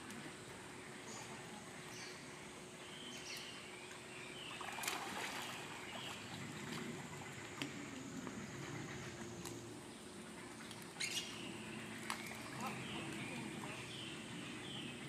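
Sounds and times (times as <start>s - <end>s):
water splashing and trickling: 3.2s - 14.6s.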